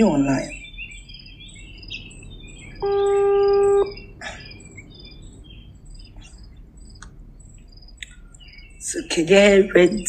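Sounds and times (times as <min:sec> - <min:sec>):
small birds chirping: 0:00.0 - 0:10.0
loud steady held tone: 0:01.8 - 0:05.4.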